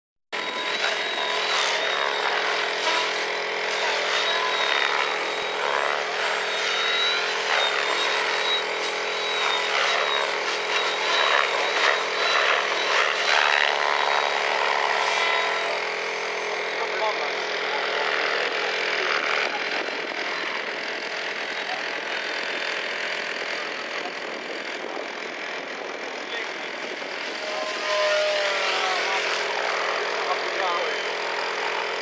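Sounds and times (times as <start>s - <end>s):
model helicopter motor and rotor whine: 0.4s - 32.0s.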